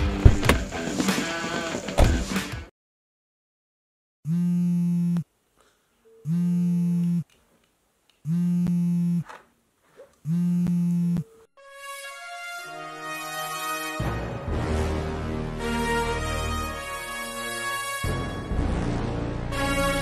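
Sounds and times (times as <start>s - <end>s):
phone vibrating on table: 4.3s - 5.3s, 6.0s - 7.2s, 8.3s - 9.3s, 10.2s - 11.5s.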